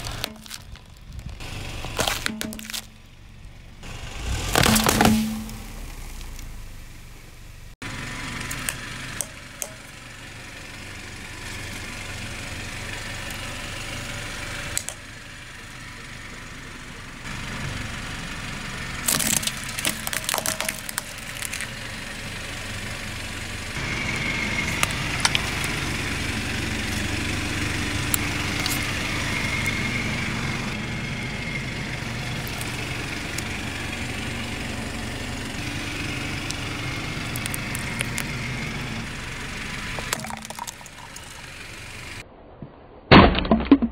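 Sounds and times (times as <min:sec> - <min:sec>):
plastic cracking under tyre: 0:00.0 - 0:03.0, 0:04.5 - 0:05.1, 0:19.0 - 0:21.8
car engine idling: 0:00.0 - 0:42.2.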